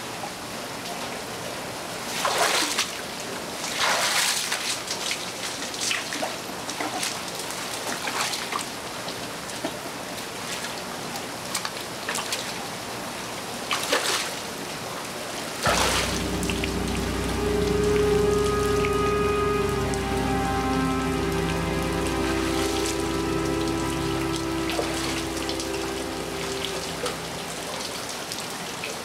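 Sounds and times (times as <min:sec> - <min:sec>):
low music score: 0:15.6 - 0:28.6.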